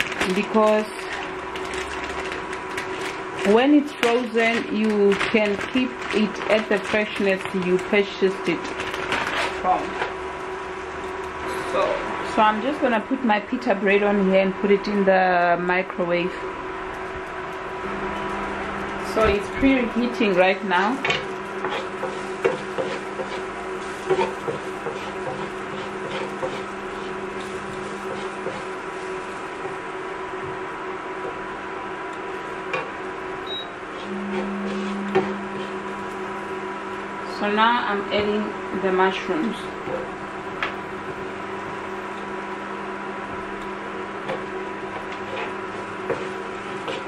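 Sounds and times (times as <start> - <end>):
electrical appliance hum: 0.0 - 47.0
food frying in a pan: 16.5 - 34.0, 38.3 - 47.0.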